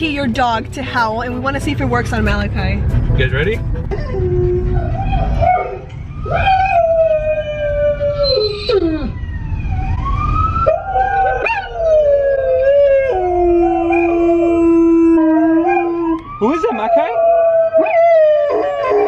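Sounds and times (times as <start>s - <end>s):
car rumbling on road: 0.0s - 17.0s
recorded howling through car speakers: 3.9s - 19.0s.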